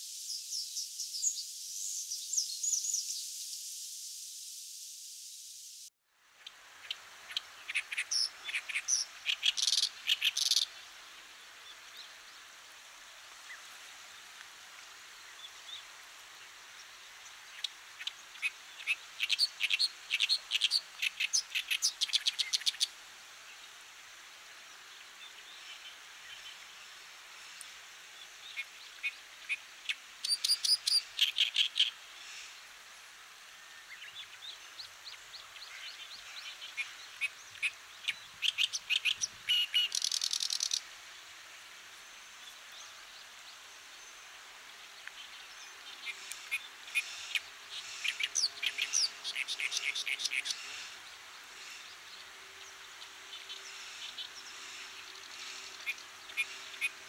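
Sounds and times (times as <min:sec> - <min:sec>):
reed warbler singing: 0:06.4 - 0:12.5, 0:15.2 - 0:22.9, 0:24.9 - 0:32.6, 0:33.8 - 0:40.9, 0:42.2 - 0:57.0.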